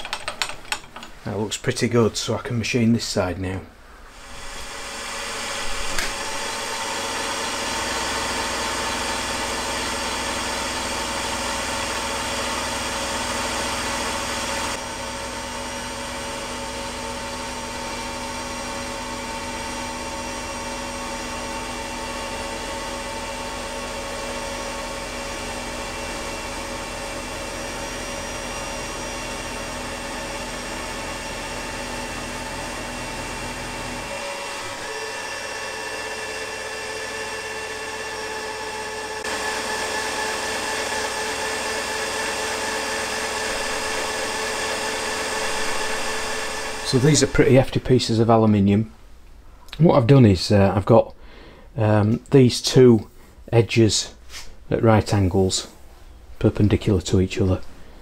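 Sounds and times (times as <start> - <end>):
milling machine cutting metal: 4.1 - 47.9.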